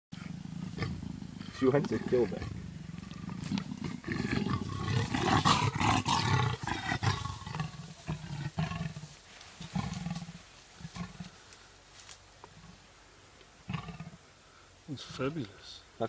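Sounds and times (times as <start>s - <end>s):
leopards growling and snarling: 0.1s - 11.6s, 13.6s - 14.4s.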